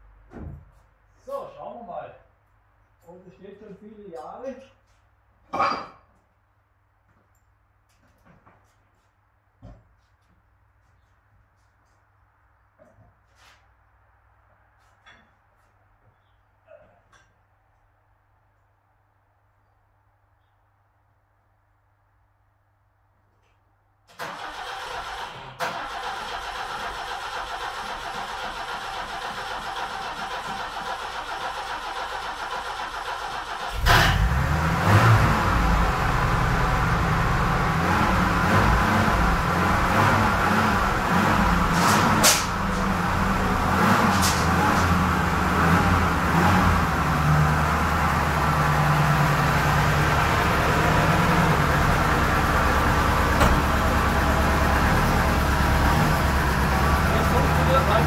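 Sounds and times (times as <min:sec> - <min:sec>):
car engine running: 0:33.8 - 0:58.0.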